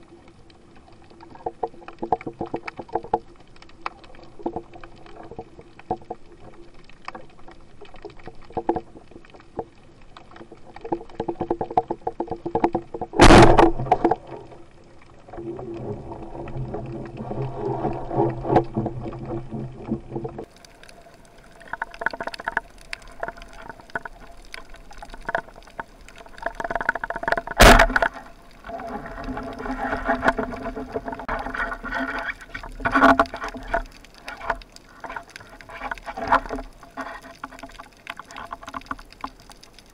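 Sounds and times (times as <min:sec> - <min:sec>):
underwater hum and crackle: 0:00.0 - 0:39.9
underwater thrashing commotion: 0:10.9 - 0:14.6, 0:15.2 - 0:39.9
speargun firing crack: 0:27.6 - 0:28.0.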